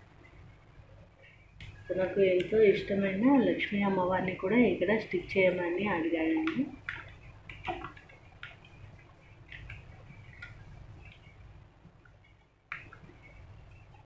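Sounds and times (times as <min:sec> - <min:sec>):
faint clicks and handling noise: 0:00.2 - 0:02.6, 0:06.4 - 0:14.0.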